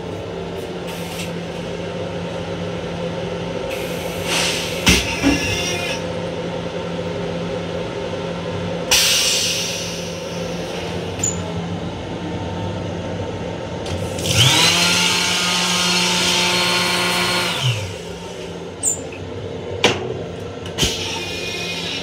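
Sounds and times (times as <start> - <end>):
electric railcar drone: 0.0 - 22.0
air hiss: 3.7 - 4.9, 8.9 - 11.0.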